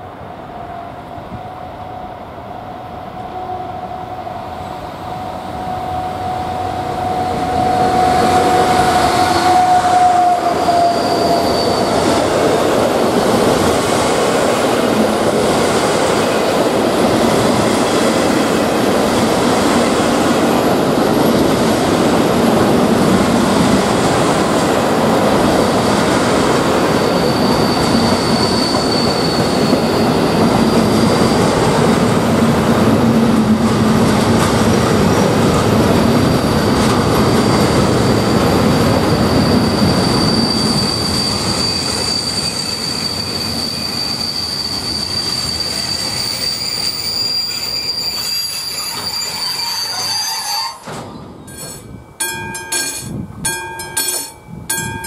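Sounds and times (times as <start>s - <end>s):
high squeal: 2.8s - 12.7s, 25.4s - 32.2s, 36.0s - 52.0s
train wheels rumbling on rails: 4.0s - 55.0s.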